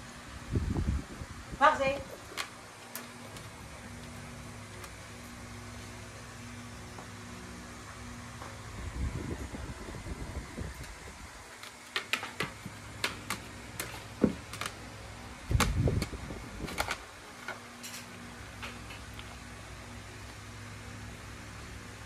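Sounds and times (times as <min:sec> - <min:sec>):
dog scratching on plastic chair: 0:11.5 - 0:17.6.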